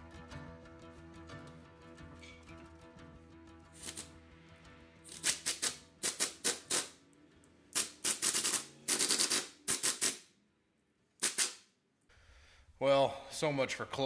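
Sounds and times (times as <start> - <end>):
pneumatic tool bursts: 5.1 - 7.0, 7.7 - 10.3, 11.2 - 11.7.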